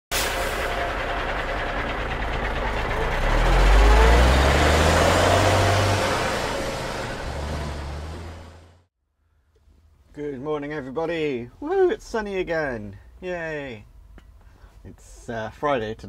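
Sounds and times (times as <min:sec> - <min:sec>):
lorry engine accelerating: 0:00.1 - 0:08.9.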